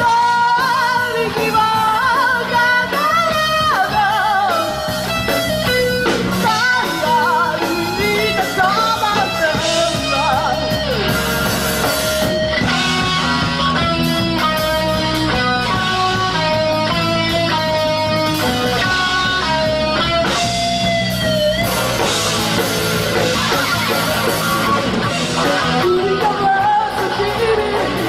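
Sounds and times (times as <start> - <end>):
woman singing: 0.0 - 5.1, 6.4 - 11.1, 25.5 - 28.0
live rock band playing: 0.0 - 28.0.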